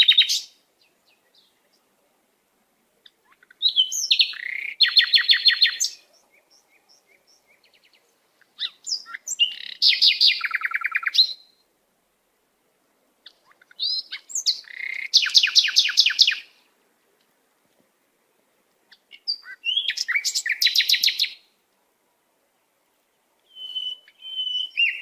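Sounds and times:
songbird trilling: 0.0 - 1.8, 3.0 - 11.6, 13.2 - 16.6, 18.9 - 21.5, 23.4 - 25.0.

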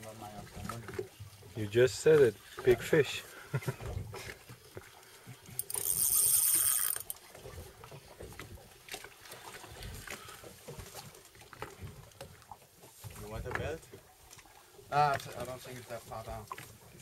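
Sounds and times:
faint wind: 0.0 - 17.0
water noise: 0.0 - 17.0
fishing reel drag buzzing: 5.6 - 7.2.

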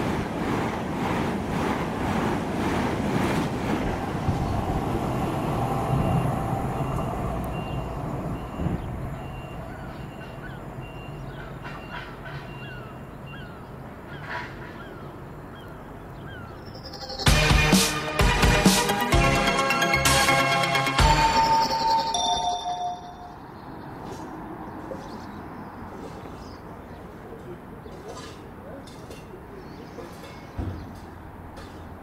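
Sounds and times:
rushing noise: 0.0 - 9.7
loud music: 17.2 - 23.0.

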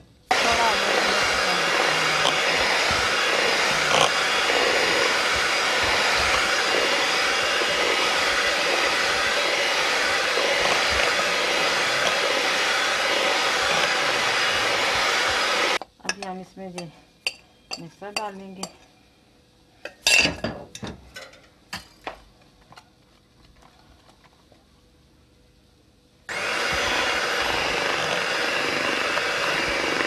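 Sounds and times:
electric hand mixer running: 0.0 - 15.8, 26.3 - 30.0.

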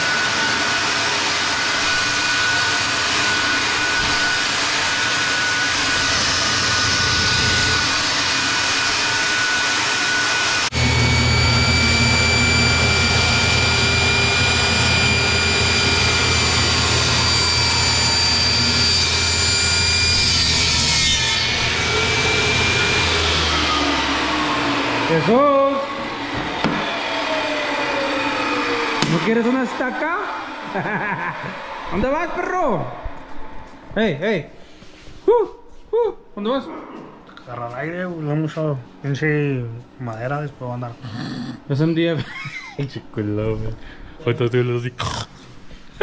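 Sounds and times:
table saw cutting: 0.0 - 33.8.

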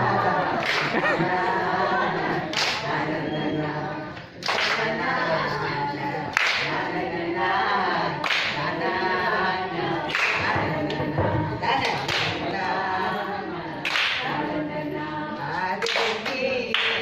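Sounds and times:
women singing together: 0.0 - 17.0
hands clapping: 0.6 - 1.0, 2.5 - 2.9, 4.2 - 4.9, 6.3 - 6.8, 8.2 - 8.6, 10.1 - 11.2, 11.8 - 12.6, 13.8 - 14.4, 15.8 - 17.0.

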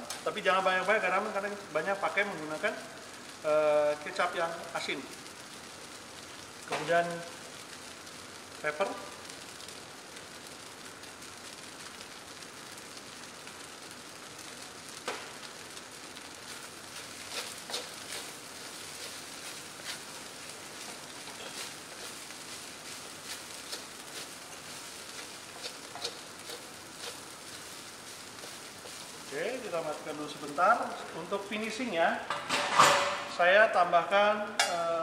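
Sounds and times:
rice sizzling in a wok: 0.0 - 35.0
wooden spatula scraping a wok: 16.2 - 31.0.

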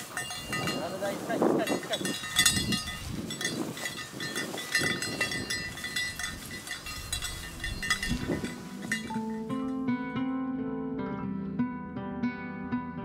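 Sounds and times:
small bell jingling: 0.0 - 9.8
rustling through vegetation: 0.0 - 9.9.

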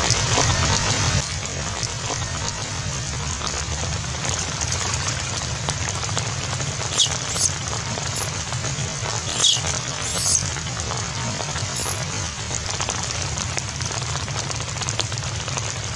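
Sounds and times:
rain-like hiss: 0.0 - 15.9
baby monkey squealing: 6.9 - 8.4, 9.3 - 10.6, 11.6 - 12.2.

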